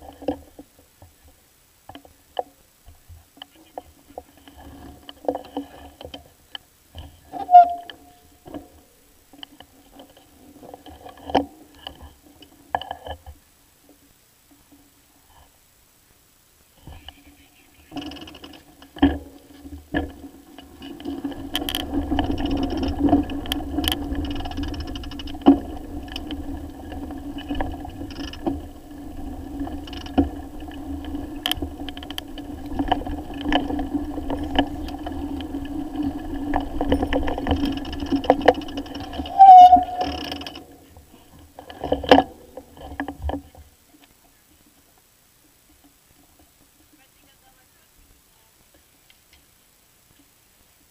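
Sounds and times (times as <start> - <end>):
bicycle hum on bumpy ground: 0.0 - 15.6, 16.8 - 47.6
bicycle brake squeal: 7.4 - 8.3, 39.2 - 40.3.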